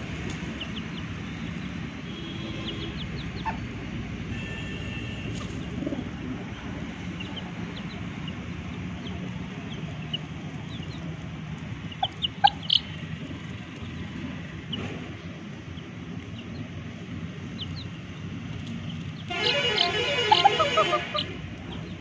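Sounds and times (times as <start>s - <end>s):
chicks peeping: 0.0s - 4.0s, 5.2s - 22.0s
chicken calls: 2.5s - 3.9s, 5.2s - 14.9s, 17.4s - 22.0s.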